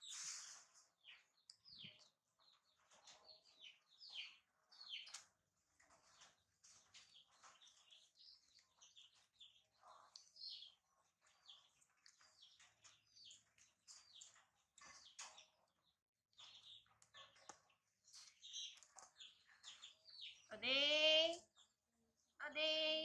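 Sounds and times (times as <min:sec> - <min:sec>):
small birds chirping: 0:00.0 - 0:23.0.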